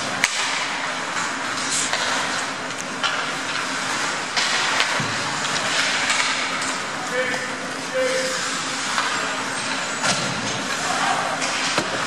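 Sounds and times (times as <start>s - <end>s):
sticks and puck clacking: 0.0s - 12.0s
skates scraping ice: 0.2s - 12.0s.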